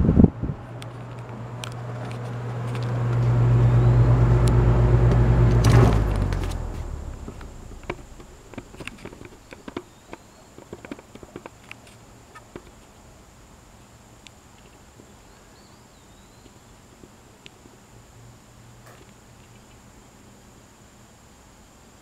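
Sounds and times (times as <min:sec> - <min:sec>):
fan motor humming: 0:00.0 - 0:10.2
quiet fan whir: 0:00.0 - 0:22.0.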